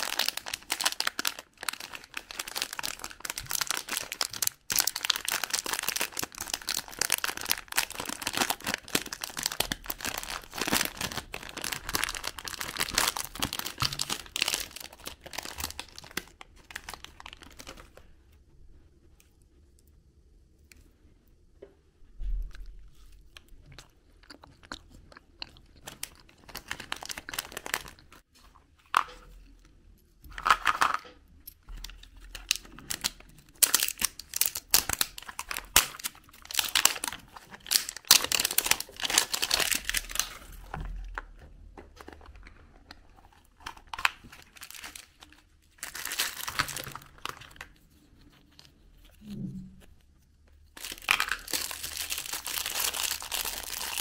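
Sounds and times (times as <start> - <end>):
plastic wrappers crinkling and tearing: 0.0 - 18.0, 25.4 - 28.3, 31.7 - 49.2, 50.6 - 54.0.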